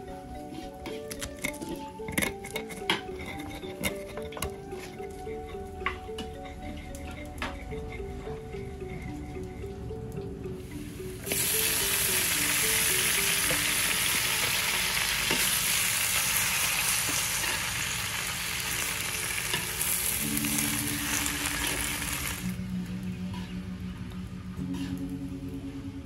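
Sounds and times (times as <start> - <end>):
background music: 0.0 - 26.0
metal spatula stirring: 0.6 - 5.0
vegetables sizzling in a wok: 10.6 - 22.6.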